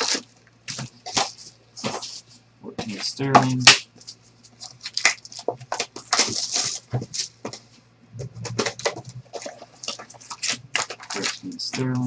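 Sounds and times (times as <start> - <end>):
shrink wrap crinkling and tearing: 0.0 - 2.3, 3.6 - 7.6, 8.4 - 12.0
cardboard box clicks and crackles: 4.7 - 7.6.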